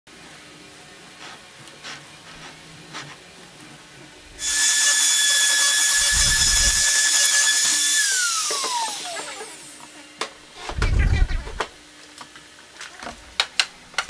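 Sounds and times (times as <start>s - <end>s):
router whining cutting wood: 4.4s - 9.9s
low rumble: 10.7s - 11.6s.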